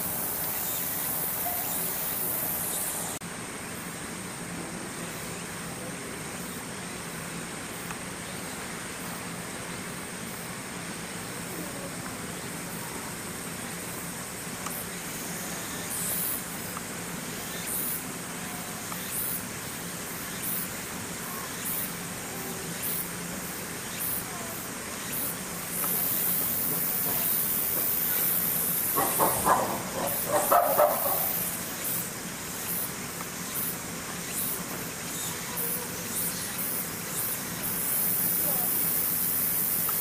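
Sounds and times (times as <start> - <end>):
choppy burst of calls: 26.9 - 32.0.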